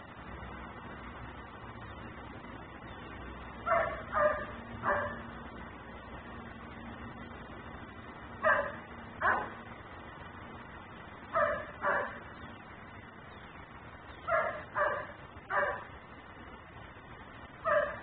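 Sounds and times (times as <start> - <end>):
dog barking: 3.7 - 5.3, 8.4 - 9.6, 11.3 - 12.2, 14.3 - 15.9, 17.6 - 18.0.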